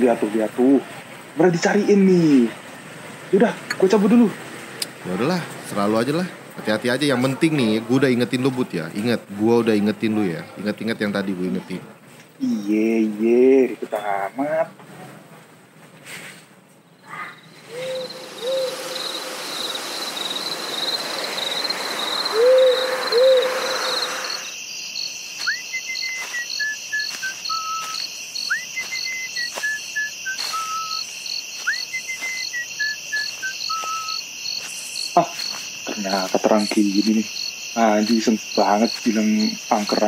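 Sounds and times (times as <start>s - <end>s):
crickets chirping: 0.0s - 11.8s, 12.4s - 14.6s, 16.8s - 40.0s
faint insect trill: 16.9s - 40.0s
owl hooting: 17.0s - 24.6s, 25.4s - 35.1s
hiss: 17.6s - 24.6s
person whistling a tune: 25.4s - 31.0s, 31.6s - 34.2s.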